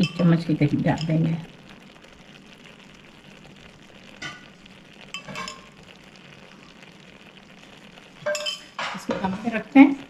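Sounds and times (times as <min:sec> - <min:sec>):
pot sizzling hiss: 0:00.0 - 0:10.0
metal spoon clinks: 0:08.3 - 0:08.7.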